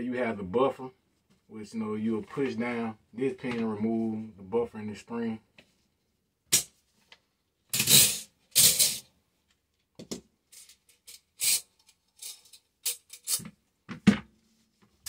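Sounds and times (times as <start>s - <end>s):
metal spring clicks and scrapes: 7.7s - 9.0s, 10.5s - 13.5s.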